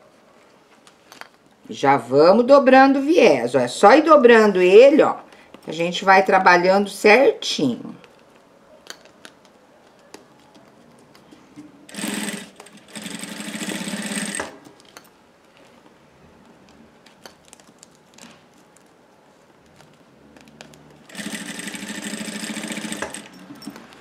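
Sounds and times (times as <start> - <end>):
sewing machine stitching: 11.9 - 14.6, 21.1 - 23.8.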